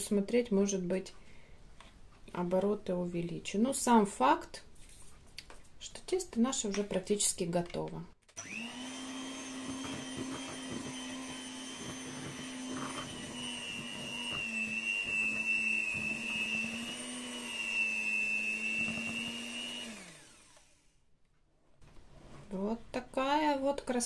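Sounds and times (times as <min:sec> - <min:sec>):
electric hand mixer running: 0:08.4 - 0:21.0.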